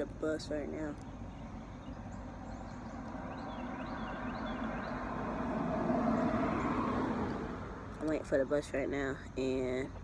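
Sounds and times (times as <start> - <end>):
road vehicle passing by: 1.1 - 9.2.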